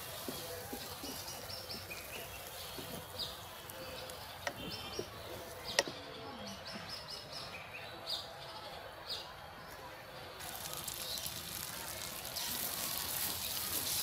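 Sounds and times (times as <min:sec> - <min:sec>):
frying oil hiss: 0:00.0 - 0:04.4, 0:10.4 - 0:14.0
birds chirping: 0:00.0 - 0:14.0.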